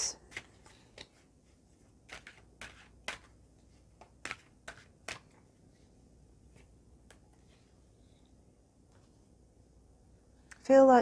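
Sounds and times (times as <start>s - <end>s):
cards shuffling: 0.2s - 1.3s, 2.0s - 5.5s.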